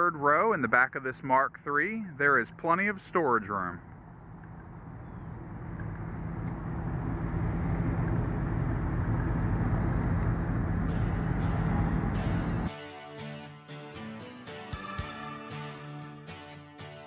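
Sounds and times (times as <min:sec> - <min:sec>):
van engine idling: 0:03.7 - 0:12.7.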